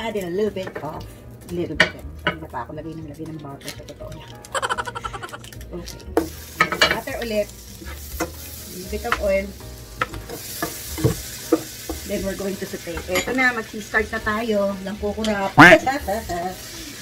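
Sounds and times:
food sizzling in frying pan: 4.6 - 17.0
utensil knocking against pan: 10.0 - 12.1.

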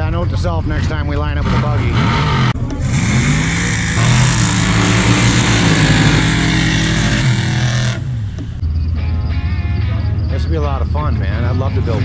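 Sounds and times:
truck engines at full throttle: 0.0 - 12.0.

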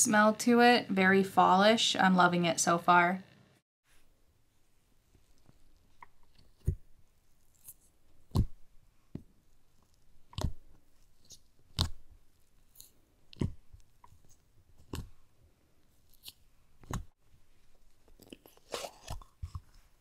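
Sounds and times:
fingers popping slime: 8.2 - 9.3, 10.2 - 15.2.

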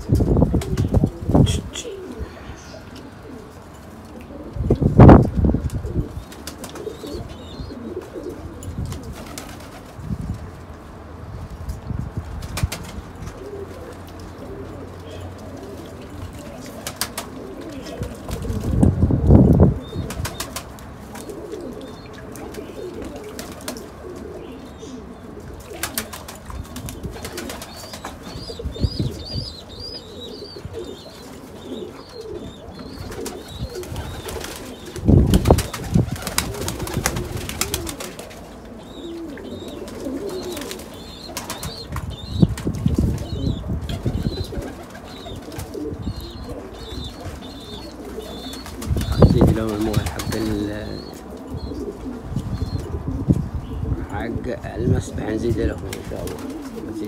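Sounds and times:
pigeons cooing: 0.0 - 10.2, 12.6 - 57.0
wings flapping and water splashing: 8.9 - 10.0, 16.6 - 18.8, 19.9 - 23.9, 25.6 - 28.4, 32.9 - 38.4, 39.6 - 45.8, 47.0 - 50.5.

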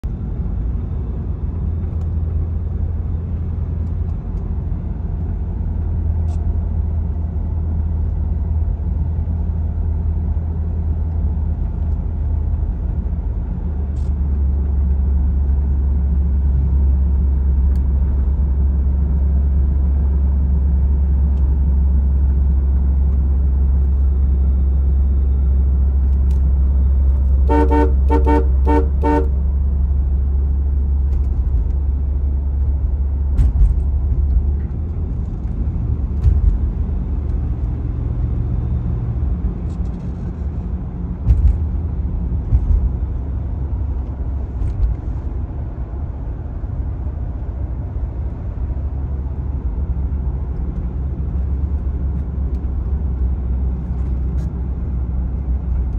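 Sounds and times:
car engine and tyre drone: 0.0 - 55.9
car horn toots: 27.4 - 29.4.

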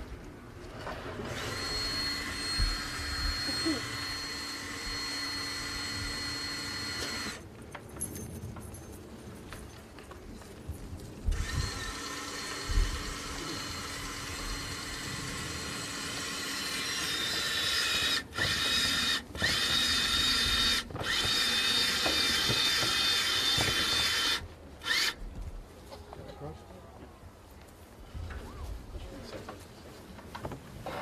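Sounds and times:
electric hoist motor whining: 1.0 - 7.4, 11.3 - 25.2.

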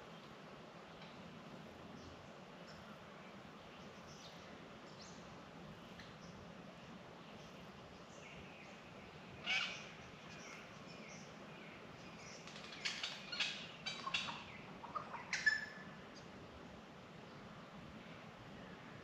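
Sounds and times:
magpies calling: 9.4 - 10.6, 12.3 - 15.9.

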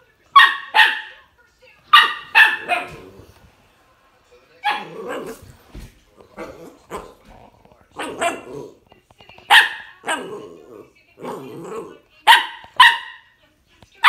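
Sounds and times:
puppy barking: 0.3 - 1.2, 1.9 - 3.2, 4.6 - 5.4, 7.9 - 8.8, 9.5 - 13.4.

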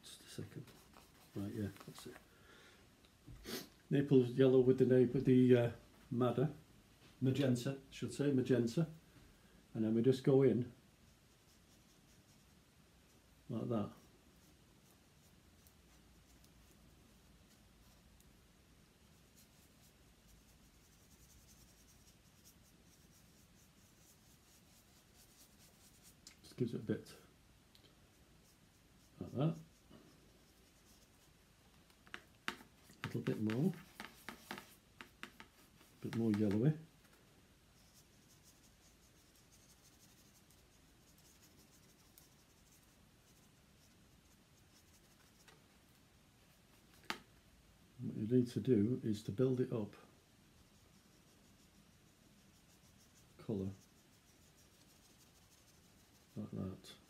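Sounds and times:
paintbrush scratching on board: 11.1 - 12.6, 13.8 - 18.2, 19.0 - 26.2, 28.1 - 45.6, 50.5 - 57.0.

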